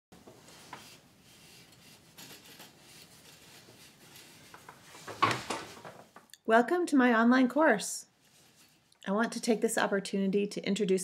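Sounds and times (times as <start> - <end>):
yarn rubbing against warp threads: 0.2 - 5.2.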